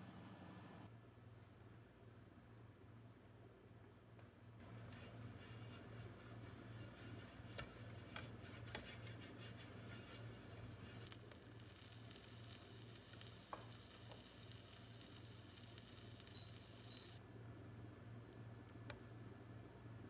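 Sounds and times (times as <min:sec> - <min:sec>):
pastry brush stroking a frying pan: 0:04.6 - 0:17.2
faint oil sizzle: 0:04.7 - 0:17.2.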